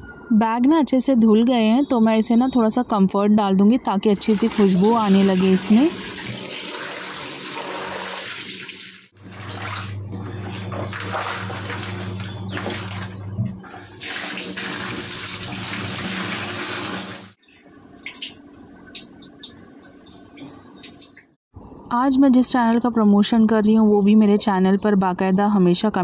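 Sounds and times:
water pouring into plastic bucket: 4.2 - 13.2, 13.8 - 21.1
bags swished in water: 9.2 - 13.2
water dripping onto tiles: 17.4 - 21.3.

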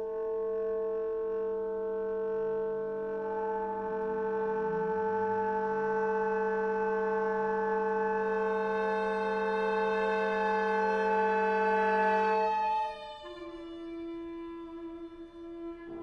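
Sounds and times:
winds and strings sustained chord: 2.6 - 14.3.

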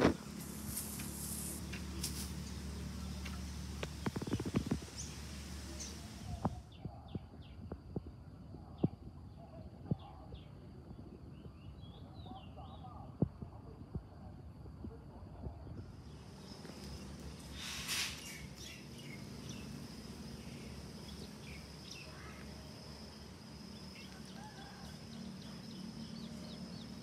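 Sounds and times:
steady hiss: 0.0 - 6.6, 15.8 - 27.0
birds chirping: 0.0 - 13.0, 15.8 - 27.0.

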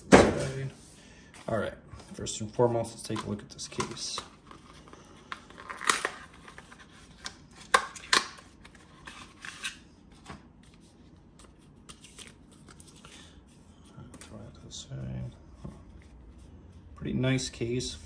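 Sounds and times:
packaging being handled and opened: 2.9 - 13.4.

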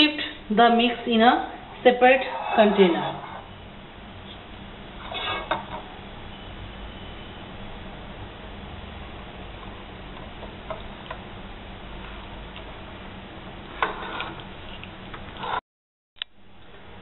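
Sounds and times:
background hiss and hum: 0.0 - 15.6, 16.2 - 17.0
spoon scraping ceramic bowl: 2.1 - 3.5, 5.0 - 5.8.

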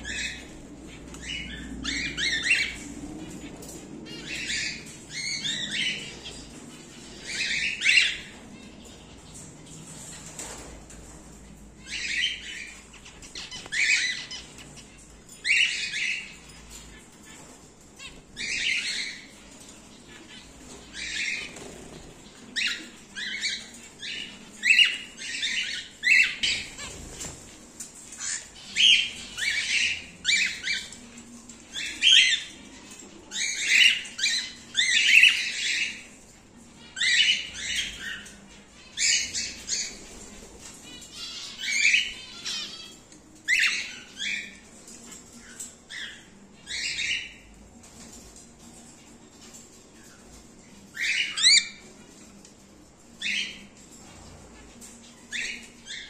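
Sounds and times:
cockatiels squawking: 40.8 - 44.6, 50.9 - 51.8.

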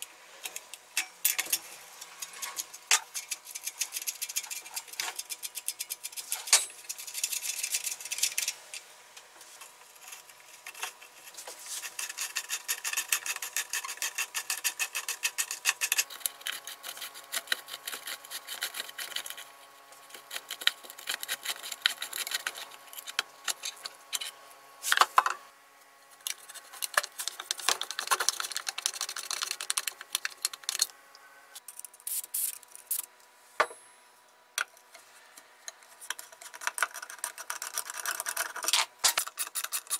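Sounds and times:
hand tools and metal parts clicking: 0.4 - 8.9, 11.8 - 25.4, 26.2 - 30.9, 35.7 - 39.9.

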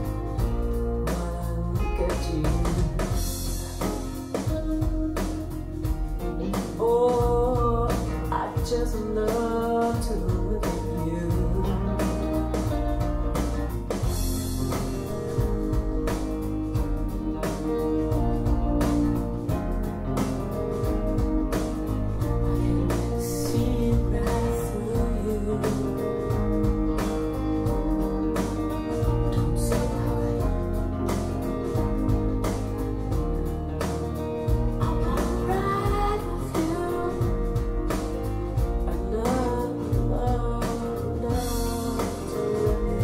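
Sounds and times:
person singing: 0.0 - 5.6, 6.2 - 15.5, 22.1 - 27.2, 28.8 - 31.6, 34.8 - 43.0
guitar: 0.0 - 43.0
rock song over speakers: 0.0 - 43.0
steady drum beat: 0.0 - 43.0.

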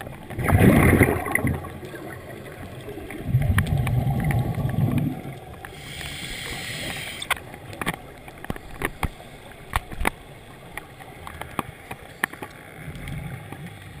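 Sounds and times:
rumble of exhaled bubbles: 0.0 - 5.9
scuba regulator hissing inhale: 5.7 - 7.4.

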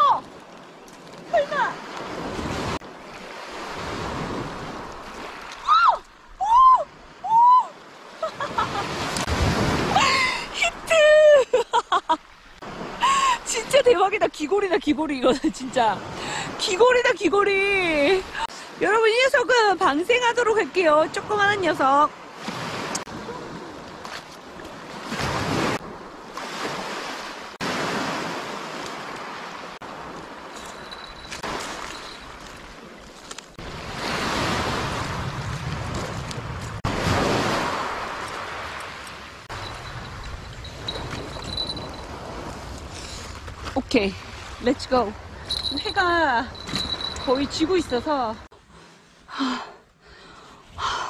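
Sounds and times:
waves washing onto pebbles: 8.2 - 10.0, 23.9 - 43.5
wind on microphone: 29.9 - 48.4.

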